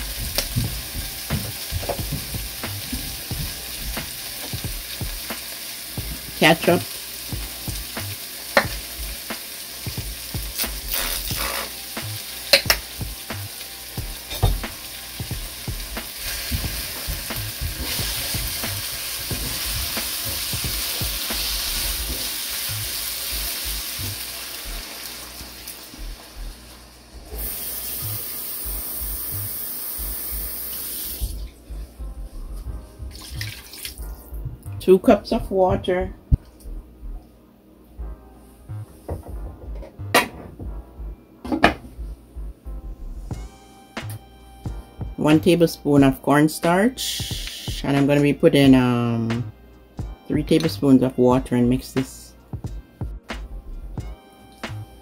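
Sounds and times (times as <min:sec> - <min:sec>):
vegetables sizzling in a frying pan: 0:00.0 - 0:31.3
water poured into pan: 0:33.2 - 0:34.0.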